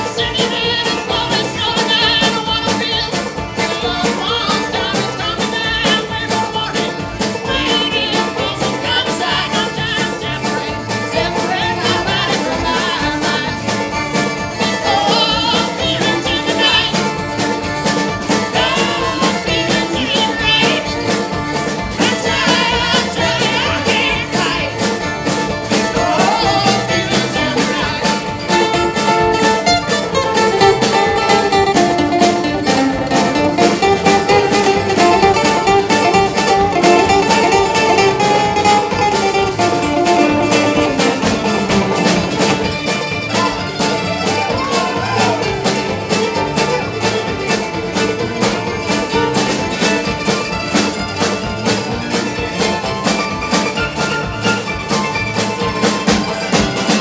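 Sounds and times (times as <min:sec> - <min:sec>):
man singing: 0:00.0 - 0:17.2, 0:18.3 - 0:21.3, 0:21.9 - 0:25.0, 0:25.7 - 0:29.6, 0:43.3 - 0:45.9
folk-rock band playing: 0:00.0 - 0:57.0
guitar lead line: 0:00.0 - 0:57.0.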